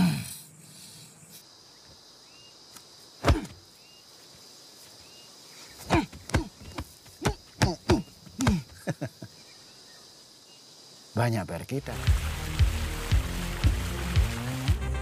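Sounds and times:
high insect buzz: 0.0 - 15.0.

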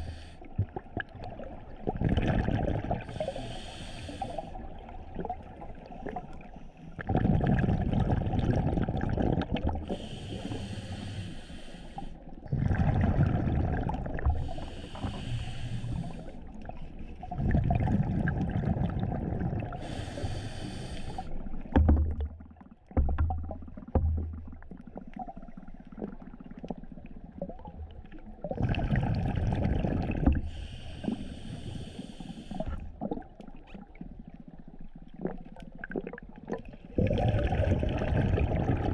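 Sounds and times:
diver breathing through regulator: 0.0 - 0.5, 3.0 - 4.7, 9.8 - 12.2, 14.2 - 16.5, 19.6 - 21.7, 30.3 - 33.0
exhaled bubbles burbling: 0.0 - 3.3, 4.6 - 10.2, 12.4 - 14.7, 16.7 - 20.1, 21.5 - 31.2, 32.5 - 38.9.

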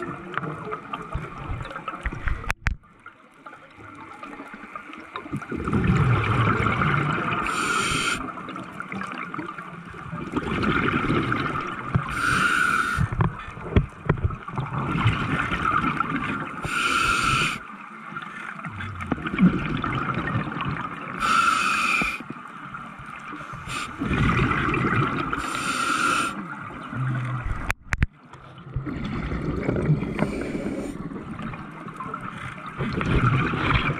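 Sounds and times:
exhaled bubbles rumbling: 5.2 - 7.5, 8.5 - 12.4, 13.0 - 16.6, 18.7 - 21.2, 23.0 - 25.5, 26.5 - 33.9
regulator inhale hiss: 7.4 - 8.3, 12.1 - 13.2, 16.6 - 17.7, 21.2 - 22.3, 23.4 - 24.0, 25.4 - 26.4, 30.1 - 31.1.

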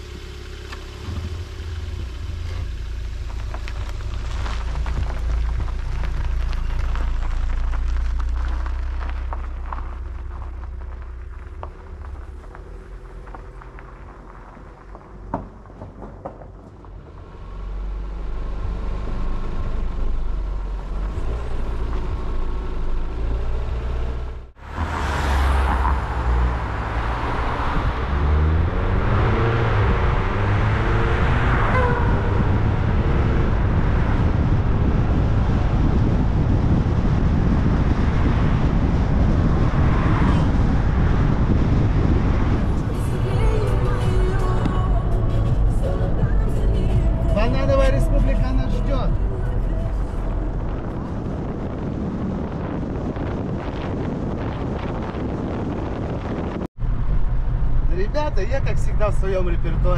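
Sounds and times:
car engine running: 0.0 - 59.9
tyre noise on paved road: 0.0 - 59.9
wind buffeting microphone: 25.4 - 59.9.

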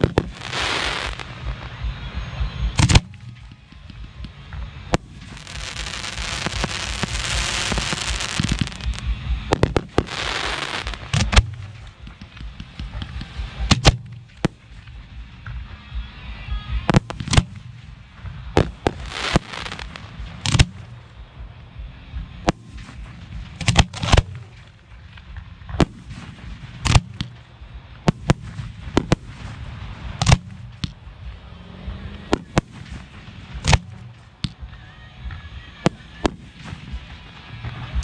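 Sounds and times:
firework hissing: 0.0 - 15.4, 16.8 - 21.8, 22.5 - 34.6
firework shells booming: 2.7 - 14.8, 16.9 - 21.2, 22.5 - 31.1, 32.1 - 34.6.

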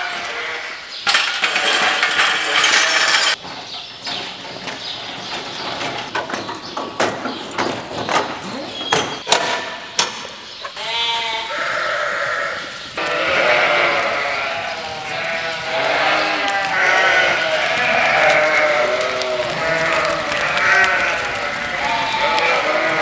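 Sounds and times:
sharp knocks: 5.8 - 10.4
lambs bleating: 10.8 - 23.0.

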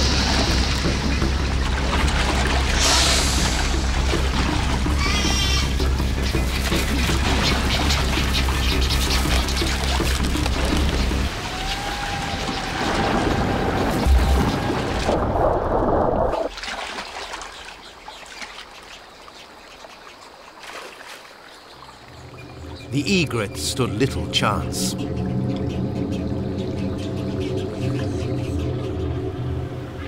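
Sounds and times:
background music with pulsing bass: 0.0 - 11.4
heavy water splashing: 0.0 - 28.4
water trickling and dripping: 0.0 - 30.0.

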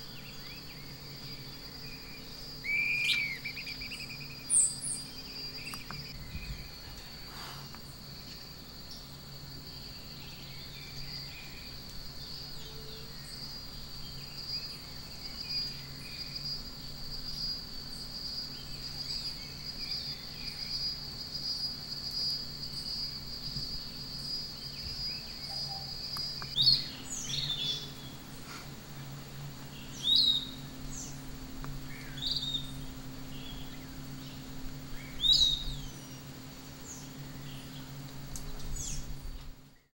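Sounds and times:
faint bird chirps: 0.0 - 9.0, 24.7 - 28.7
insect trilling: 0.0 - 9.0, 9.7 - 39.2
bird calls sweeping in pitch: 2.6 - 5.0.

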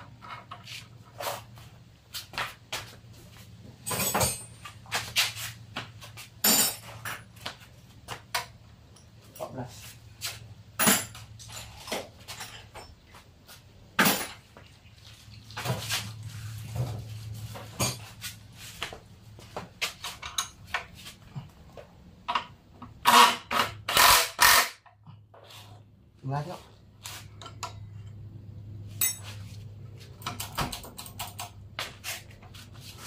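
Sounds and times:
metal tools knocking and clanking: 3.8 - 4.8, 10.8 - 13.0, 29.0 - 29.4, 30.2 - 31.6.

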